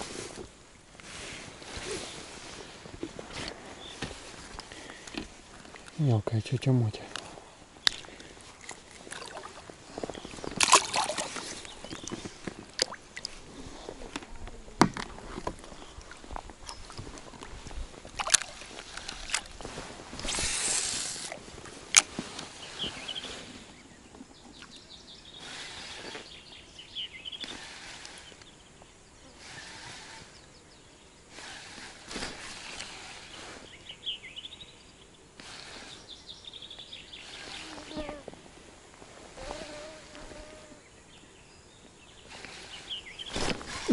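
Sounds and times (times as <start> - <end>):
birds chirping: 1.8 - 14.6, 15.5 - 19.5, 22.4 - 38.5, 39.4 - 43.9
water sloshing and splashing: 7.8 - 14.2, 15.2 - 20.4
fish splashing into water: 10.6 - 11.5, 18.1 - 19.5.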